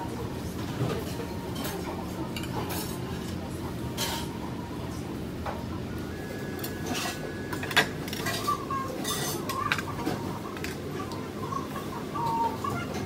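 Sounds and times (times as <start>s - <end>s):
cutlery clinking against dishes: 0.8s - 3.4s, 4.0s - 4.4s, 6.6s - 10.8s.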